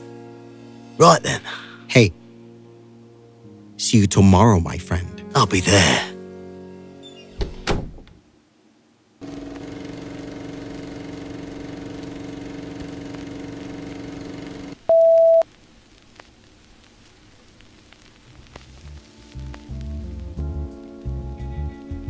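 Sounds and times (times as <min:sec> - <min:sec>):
electrical hum: 0:09.2 - 0:20.4
faint crackle with ticks: 0:15.1 - 0:21.1.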